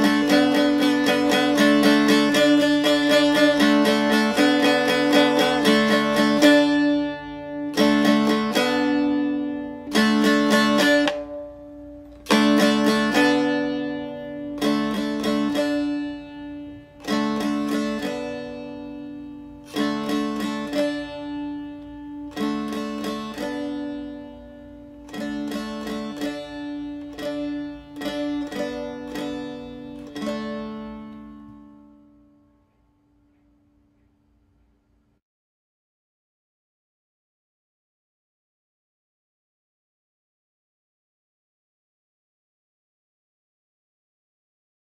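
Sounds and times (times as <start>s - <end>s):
plucked string instrument: 0.0s - 34.8s.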